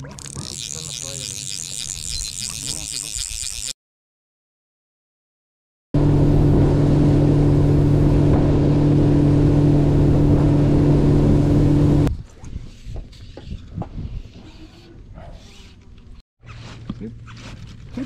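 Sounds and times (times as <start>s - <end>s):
outboard motor droning: 6.0s - 12.1s
rushing wind and water: 6.0s - 14.2s.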